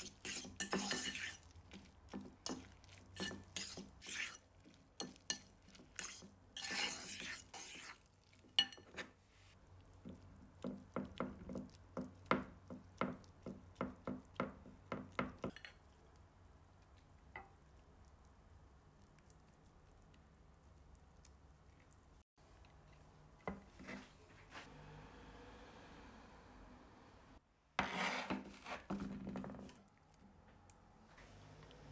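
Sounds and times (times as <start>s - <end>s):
cutlery clinking against ceramic bowl: 0.0s - 1.4s, 5.0s - 7.7s, 8.6s - 9.1s.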